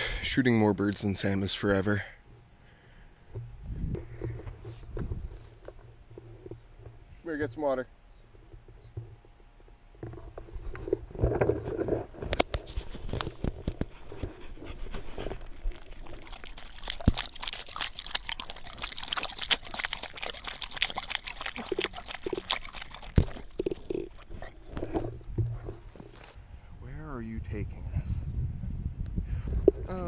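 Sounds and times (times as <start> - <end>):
dog lapping water: 13.8 - 26.1.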